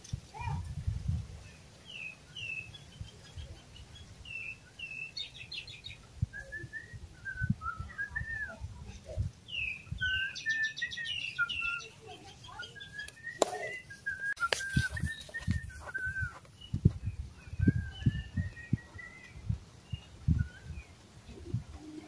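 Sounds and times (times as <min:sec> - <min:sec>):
birds whistling: 0:01.9 - 0:03.1, 0:03.8 - 0:08.6, 0:09.5 - 0:21.0
low bird chirps: 0:09.4 - 0:21.9
soft low thumps: 0:14.7 - 0:20.7.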